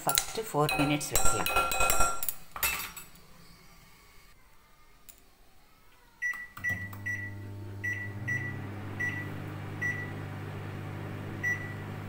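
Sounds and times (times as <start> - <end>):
microwave oven humming: 6.0 - 12.0
microwave keypad beeping: 6.2 - 10.3, 11.4 - 12.0.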